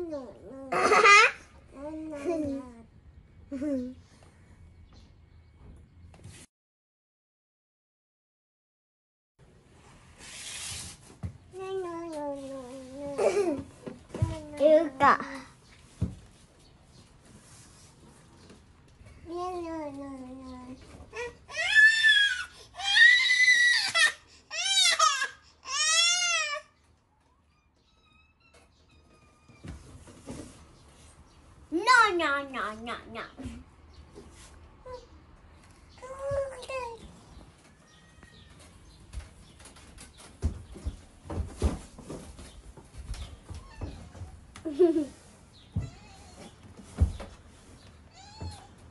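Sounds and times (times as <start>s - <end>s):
toddler crying: 21.2s - 26.7s.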